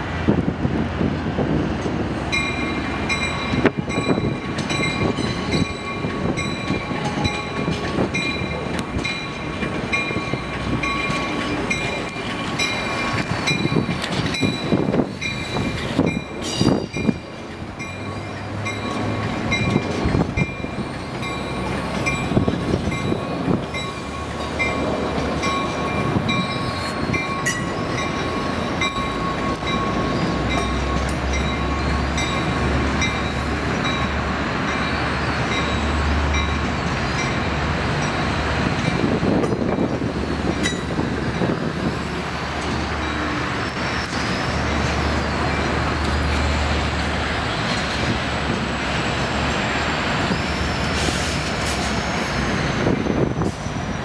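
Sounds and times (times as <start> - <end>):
train wheels clicking over rail joints: 0.4 - 54.0.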